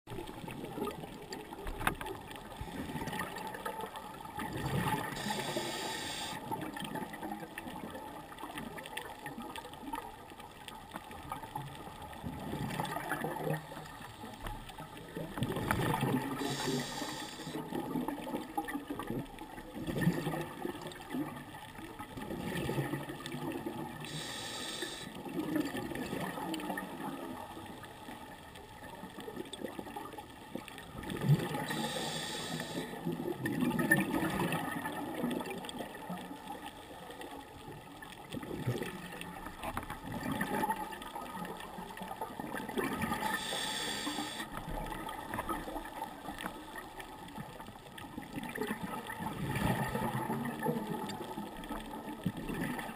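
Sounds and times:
exhaled bubbles underwater: 0.1s - 10.2s, 11.0s - 52.9s
scuba regulator inhale hiss: 5.1s - 6.4s, 16.3s - 17.6s, 24.0s - 25.2s, 31.6s - 33.0s, 43.2s - 44.6s.

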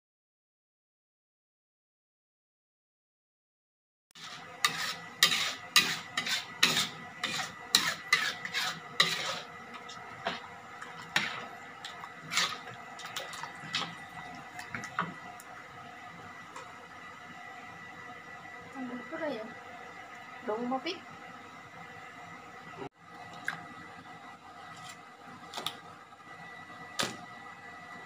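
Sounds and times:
metal ladle scraping a wok: 4.2s - 10.4s, 11.0s - 12.8s.

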